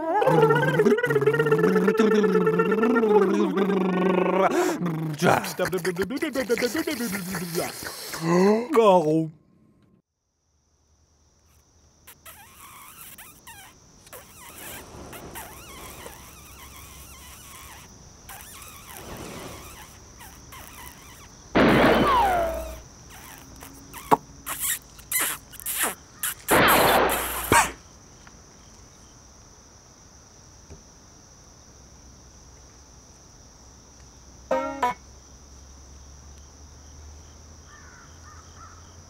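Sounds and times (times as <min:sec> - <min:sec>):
high insect-like chirring: 0:00.0 - 0:08.3, 0:10.8 - 0:29.4, 0:32.6 - 0:36.6.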